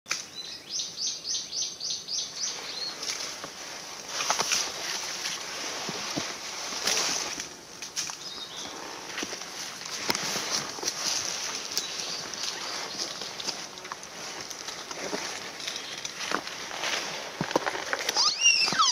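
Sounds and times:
branches brushing and crackling: 2.4 - 18.9
footsteps crunching through dry leaves: 2.4 - 18.9
bird calling high notes: 18.1 - 18.9.

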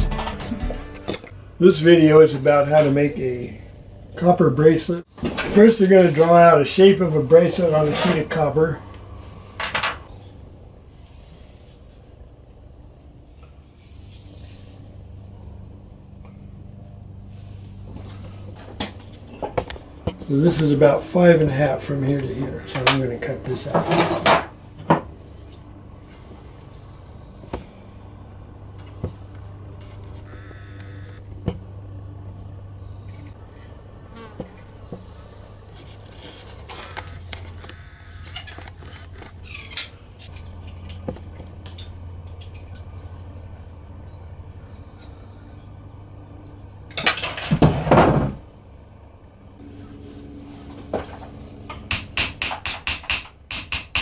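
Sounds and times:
steady low hum: 0.0 - 54.0
hammer tapping on metal: 51.9 - 54.0.

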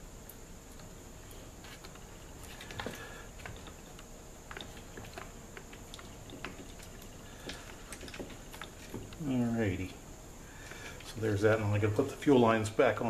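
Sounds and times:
faint high hum: 0.0 - 13.0.

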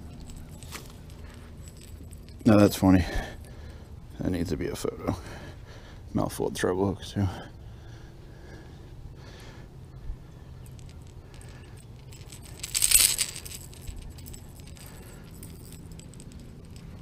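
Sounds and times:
metal fishing hooks jingling: 0.0 - 4.3, 10.5 - 17.0.

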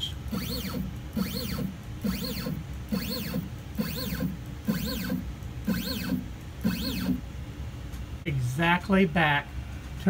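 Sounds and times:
stepper motor whine: 0.0 - 7.2.

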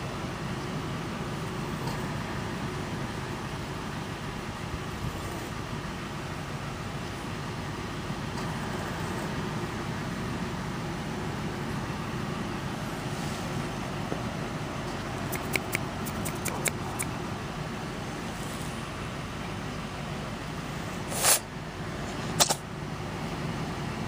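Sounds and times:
road traffic rumble: 0.0 - 24.0
quick sharp clicks: 15.2 - 17.2, 22.4 - 22.6.

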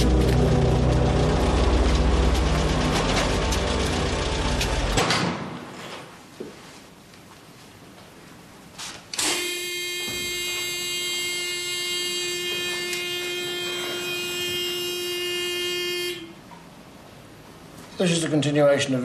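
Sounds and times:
electronic buzz tone: 9.2 - 16.5.

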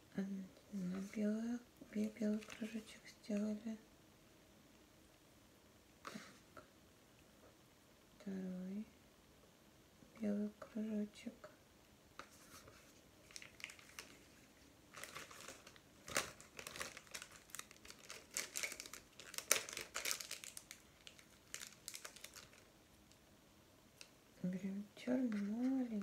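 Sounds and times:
plastic packaging crinkling: 2.0 - 2.9, 12.3 - 23.2.

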